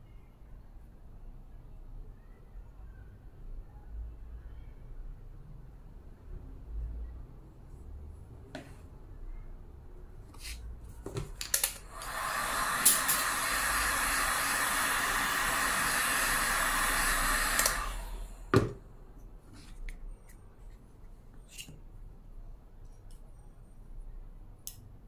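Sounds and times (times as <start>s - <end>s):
heat gun blowing air: 11.7s - 18.5s
heat gun switch click: 17.5s - 17.8s.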